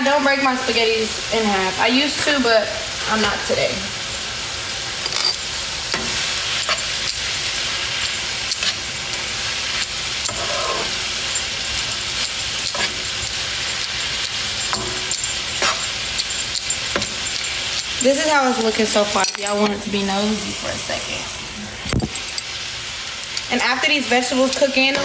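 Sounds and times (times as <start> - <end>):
food sizzling in frying pan: 0.0 - 25.0
utensil scraping pan: 8.0 - 19.8.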